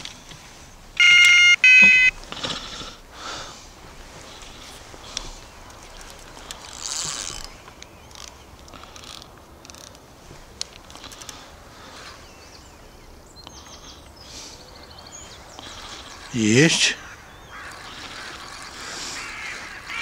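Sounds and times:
faint birds chirping: 0.0s - 20.0s
fishing reel cranking: 6.4s - 10.0s.

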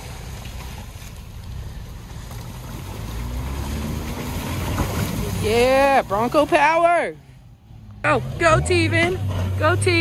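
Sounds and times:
tyres churning through slush: 0.0s - 7.2s.

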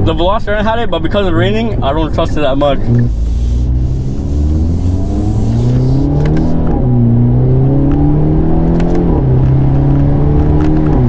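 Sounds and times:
car engine accelerating hard: 2.6s - 11.0s.

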